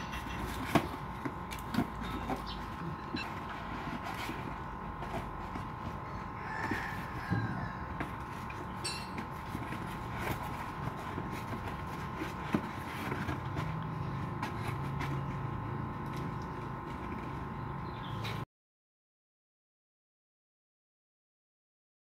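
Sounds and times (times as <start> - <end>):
background hum: 0.0 - 18.5
constant high-pitched tone: 1.5 - 10.7.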